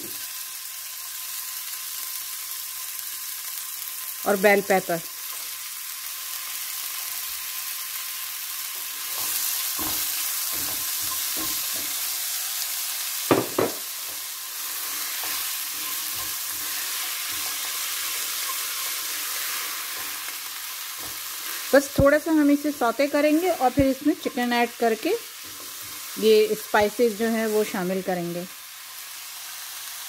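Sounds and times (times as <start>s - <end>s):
vegetables sizzling in oil: 0.0s - 30.0s
spatula scraping a pan: 14.0s - 21.7s, 25.4s - 26.2s.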